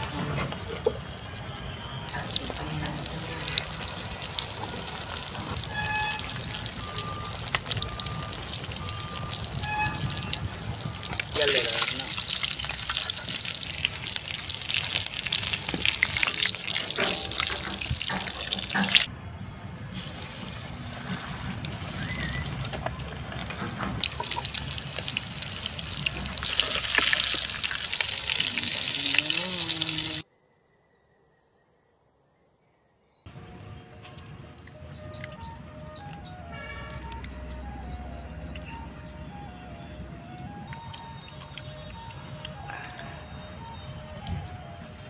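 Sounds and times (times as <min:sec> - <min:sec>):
chicken deep-frying in oil: 0:00.0 - 0:19.1, 0:19.9 - 0:30.2.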